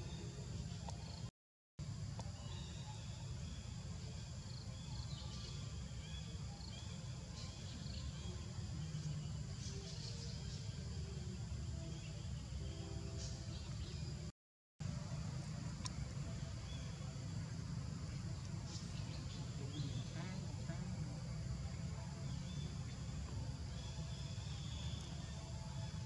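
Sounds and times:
insects chirping: 0.0s - 26.0s
low forest rumble: 0.0s - 26.0s
birds chirping: 14.9s - 26.0s.

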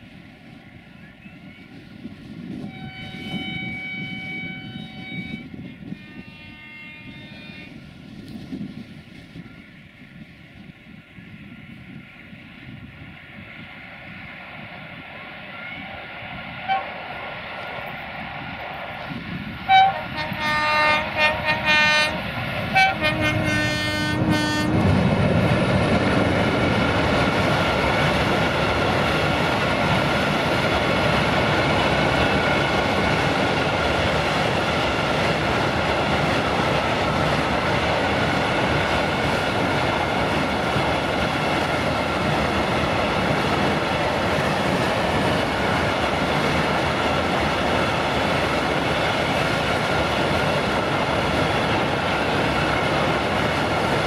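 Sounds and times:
locomotive horn blasts: 2.6s - 7.7s, 19.7s - 24.8s
train wagons rolling past: 12.6s - 54.0s.

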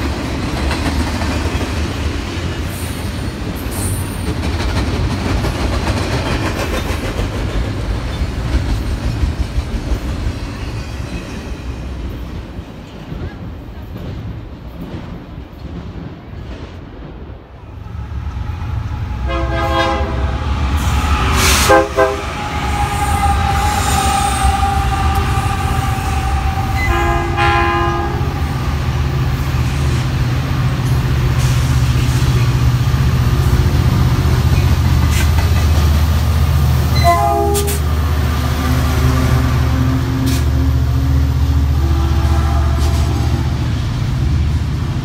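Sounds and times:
locomotive air horn blasts: 19.2s - 20.5s, 21.4s - 28.6s, 36.9s - 38.0s, 41.7s - 43.7s.

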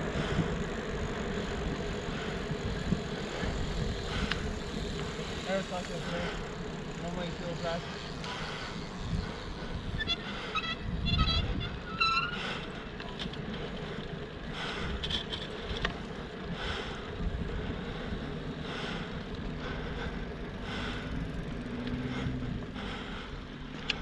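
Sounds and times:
wind rumble on microphone: 0.0s - 5.1s, 8.7s - 12.1s, 17.0s - 19.5s
heavy panting: 0.0s - 10.6s, 13.5s - 24.0s.

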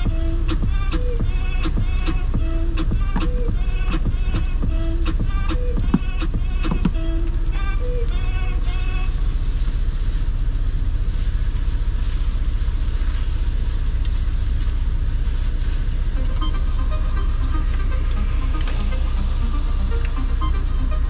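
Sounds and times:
music: 0.0s - 9.4s, 15.6s - 21.0s
diesel truck engine idling: 0.0s - 21.0s.

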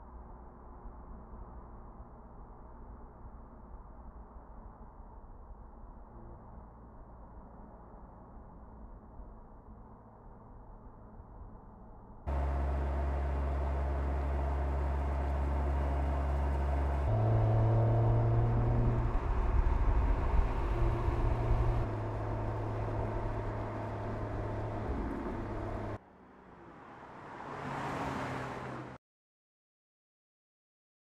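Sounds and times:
car approaching: 12.3s - 29.0s
car engine droning: 12.3s - 29.0s.

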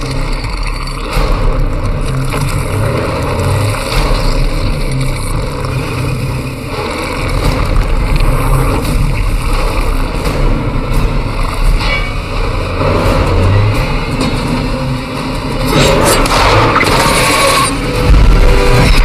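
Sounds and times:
road and wind rumble: 0.0s - 19.0s
truck engine running hard: 0.0s - 19.0s.

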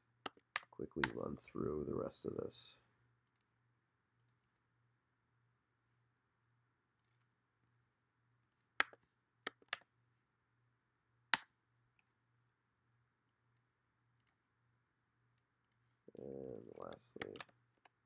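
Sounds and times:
computer mouse clicking: 0.3s - 1.2s, 8.8s - 9.9s, 16.7s - 18.0s.

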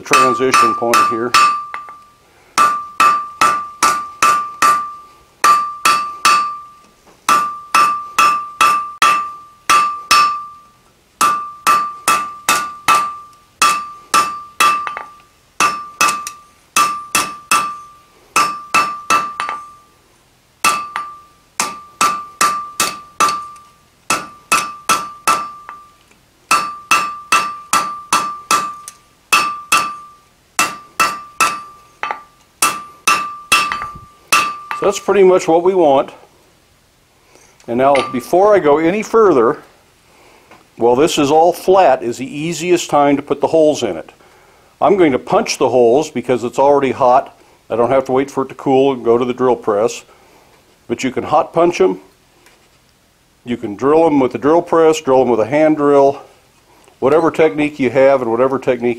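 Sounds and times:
hammer striking steel on anvil: 0.0s - 19.9s, 20.6s - 35.1s, 37.9s - 38.5s.

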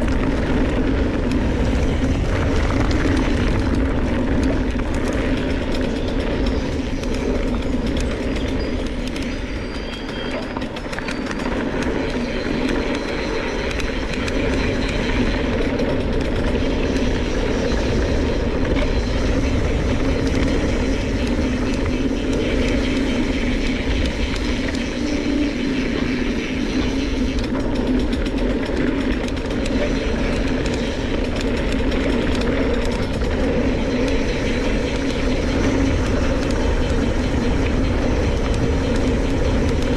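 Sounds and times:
bike rattling: 0.0s - 39.9s
tyres rumbling on dirt: 0.0s - 39.9s.

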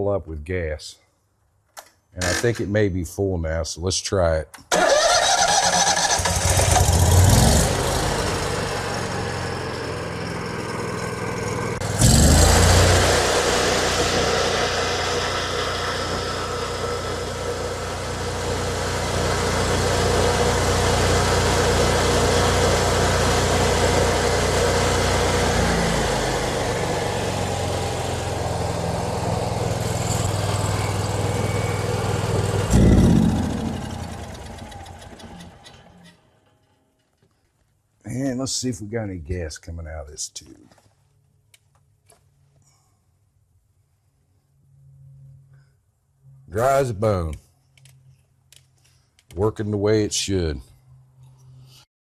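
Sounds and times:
welder engine starting and running: 2.2s - 2.6s, 4.6s - 36.7s.

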